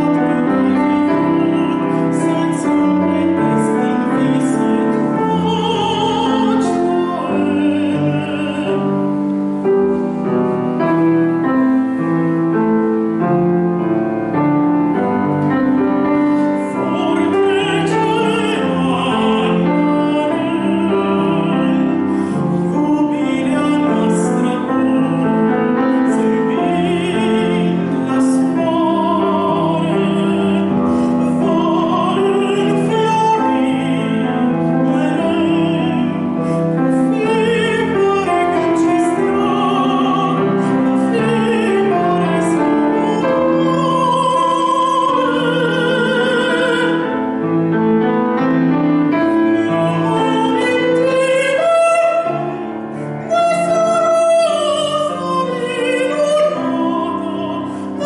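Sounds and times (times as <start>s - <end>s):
operatic male singing: 0.0s - 9.0s, 16.6s - 47.1s
piano accompaniment: 0.0s - 58.0s.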